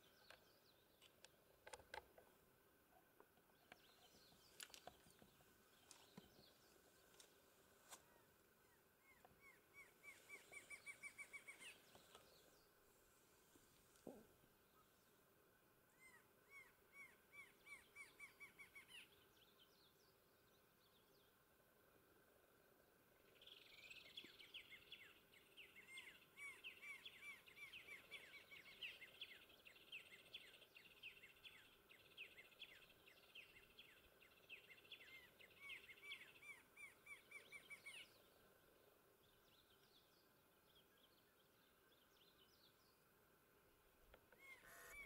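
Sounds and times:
bird singing repeated notes: 9.0 - 12.5, 44.2 - 45.0.

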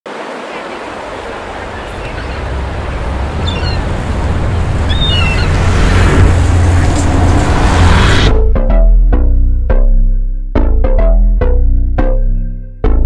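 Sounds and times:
loud rushing with deep rumble: 1.1 - 8.6.

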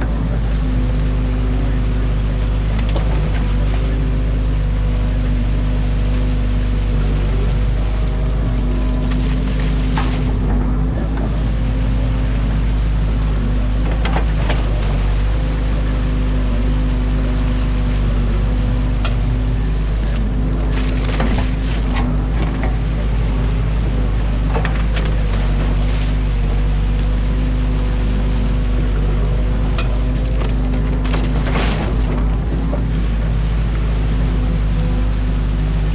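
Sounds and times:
excavator diesel engine running: 0.0 - 35.9
sticks and branches cracking: 7.8 - 10.6, 20.0 - 22.6, 29.7 - 33.0.

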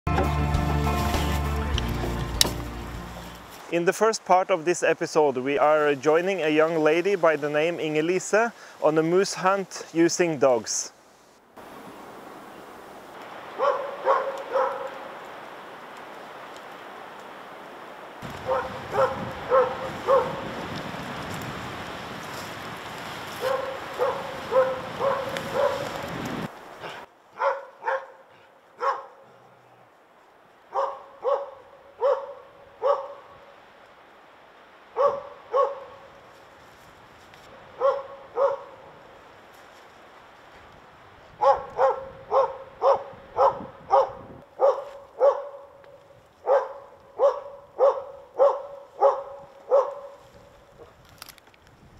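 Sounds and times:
steady hiss: 2.2 - 27.2
dog barking: 13.6 - 15.0, 18.5 - 20.4, 23.4 - 26.0, 26.8 - 29.3, 30.7 - 33.3, 34.9 - 36.1, 37.8 - 38.9, 41.4 - 45.8, 46.4 - 50.2.

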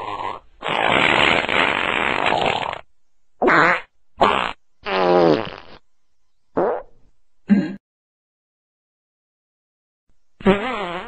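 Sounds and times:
farts: 0.0 - 2.8, 3.4 - 5.8, 6.6 - 7.0, 10.4 - 11.0.

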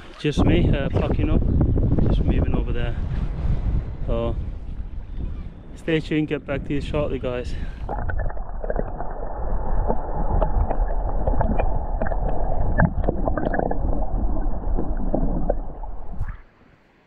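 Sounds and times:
muffled underwater current rushing: 7.7 - 17.0
clicks and crackles of water: 7.9 - 16.3.

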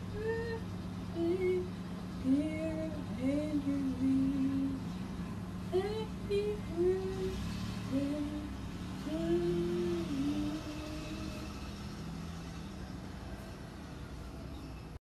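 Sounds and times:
person humming held notes: 0.0 - 4.9, 5.7 - 11.8
steady low hum: 0.0 - 15.0.

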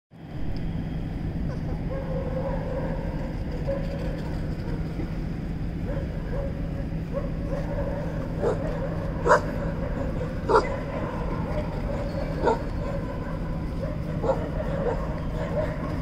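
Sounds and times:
steady low rumble: 0.2 - 16.0
puppies whimpering: 9.3 - 13.3.

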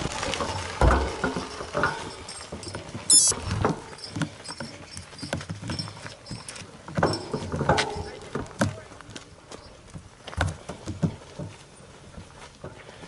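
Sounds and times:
bike jolting over stones: 0.0 - 8.2.

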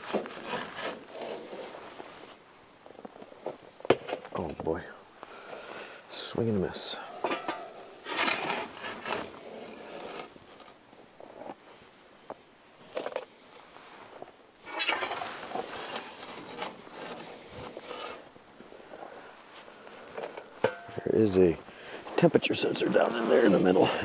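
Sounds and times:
metal shovel scraping ash: 0.0 - 2.0, 7.2 - 10.8, 14.6 - 18.4, 20.0 - 21.5, 23.0 - 24.0.

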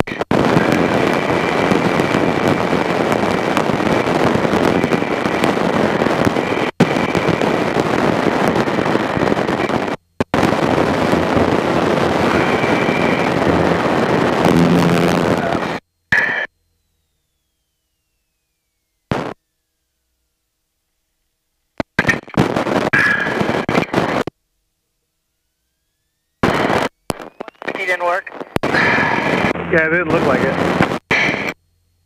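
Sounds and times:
aircraft engine and propeller roar: 0.0 - 19.6, 28.6 - 31.5.

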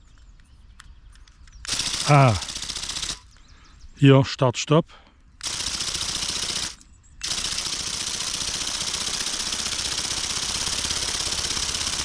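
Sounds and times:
toy flapping mechanism rattling: 1.7 - 3.2, 5.4 - 12.0.

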